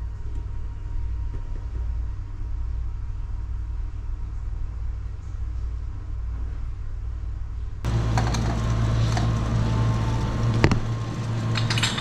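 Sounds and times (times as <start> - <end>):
low machine hum: 0.0 - 12.0
ice maker and drink dispensers: 7.9 - 12.0.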